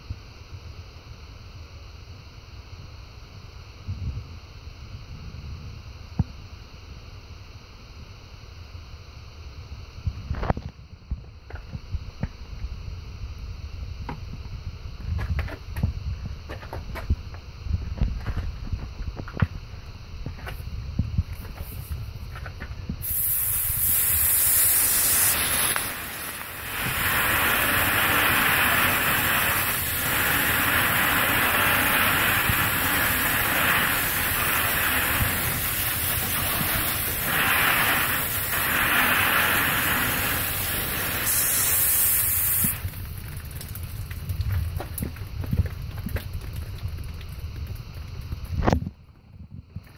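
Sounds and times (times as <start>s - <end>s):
liquid spray hissing: 23.0s - 43.9s.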